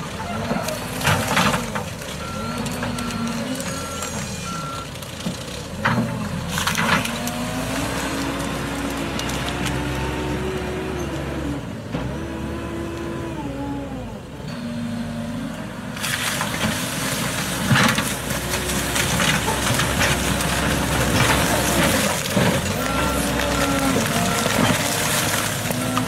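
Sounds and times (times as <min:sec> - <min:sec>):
off-road vehicle engine revving: 0:05.8 - 0:16.1, 0:17.2 - 0:26.0
tyres crunching over rough ground: 0:16.0 - 0:26.0.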